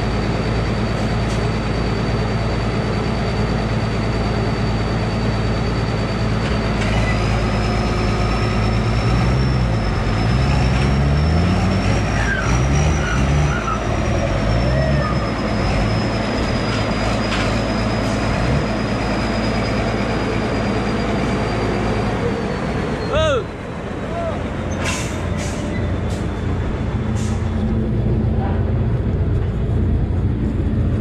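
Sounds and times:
engines running under load: 0.0s - 31.0s.

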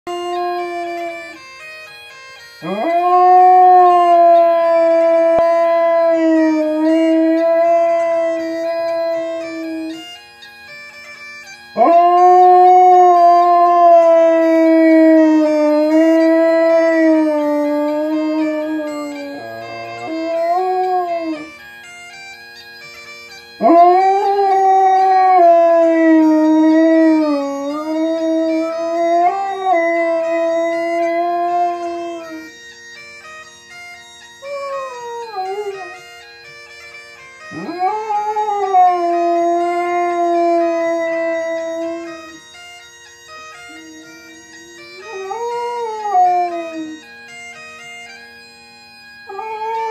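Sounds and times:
bagpipe music from television: 0.0s - 49.9s
dog howling: 37.6s - 42.4s, 43.7s - 47.0s, 49.3s - 49.9s.

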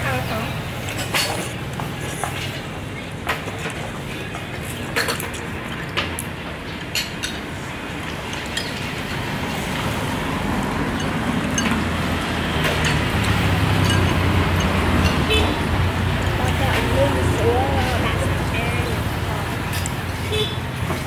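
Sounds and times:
traffic hum: 0.0s - 21.0s
low vehicle rumble: 7.6s - 21.0s
chopsticks clinking on ceramic bowls: 10.8s - 15.5s.

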